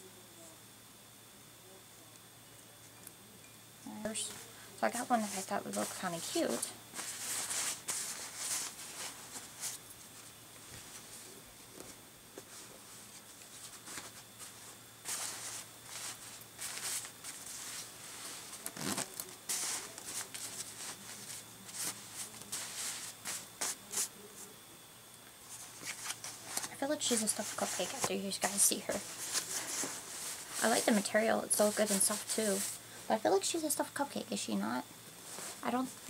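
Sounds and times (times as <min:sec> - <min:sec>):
padded fabric rustling: 0:05.1 - 0:24.1, 0:25.6 - 0:33.0, 0:35.2 - 0:36.0.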